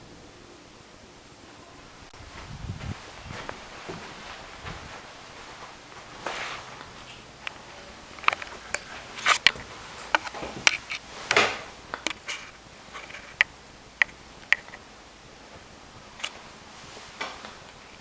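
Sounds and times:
sharp clicks and knocks: 8.2 - 14.8.

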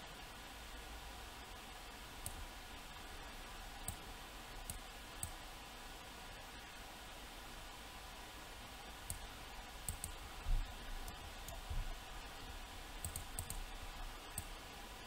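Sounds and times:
faint low hum: 0.0 - 15.0
computer mouse clicking: 3.8 - 4.0, 4.6 - 5.4, 9.8 - 10.2, 11.0 - 11.6, 13.0 - 13.6, 14.3 - 14.5.

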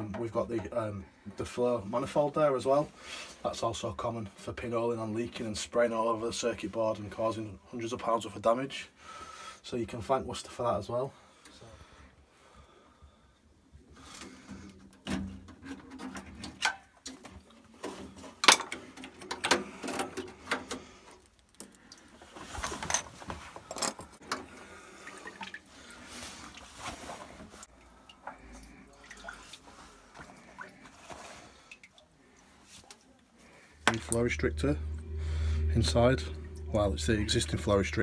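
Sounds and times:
water dripping and trickling: 19.0 - 22.5, 24.3 - 38.0.

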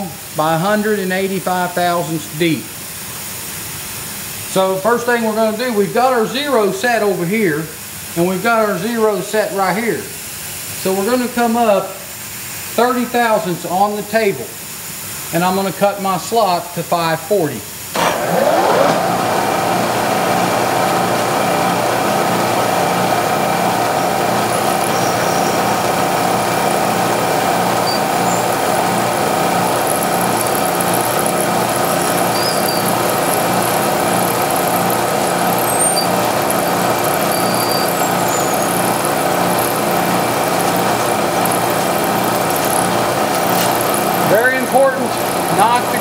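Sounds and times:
milling machine cutting metal: 17.9 - 46.0.

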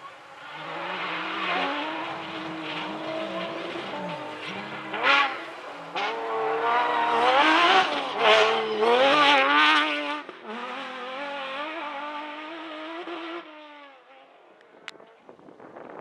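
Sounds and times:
rally car engine revving: 0.0 - 15.2.

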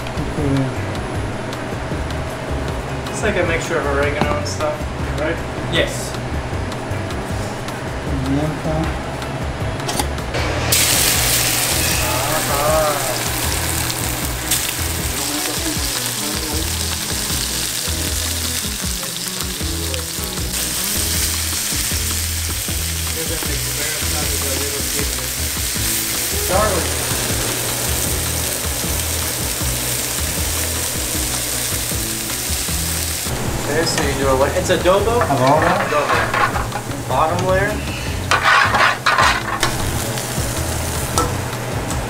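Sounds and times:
fish sizzling in a frying pan: 10.6 - 41.4.

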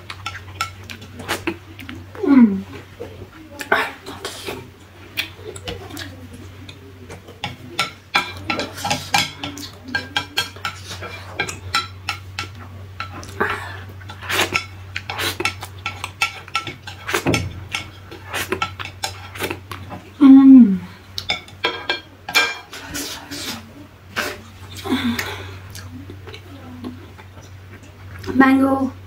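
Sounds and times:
chopsticks clicking on a plate: 7.4 - 13.4.

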